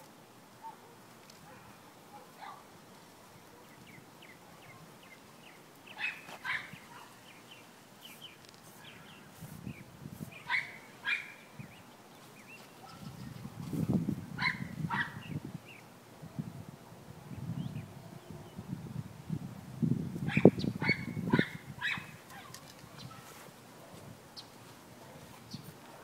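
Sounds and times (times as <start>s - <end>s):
dog barking: 0.6s - 2.7s, 6.0s - 7.2s, 10.5s - 11.4s, 12.8s - 13.1s, 14.4s - 15.2s, 20.3s - 23.4s.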